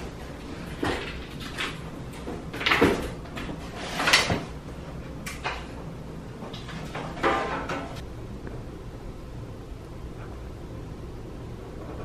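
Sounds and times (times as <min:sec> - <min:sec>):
rustles and scrapes: 0:03.3 - 0:04.5.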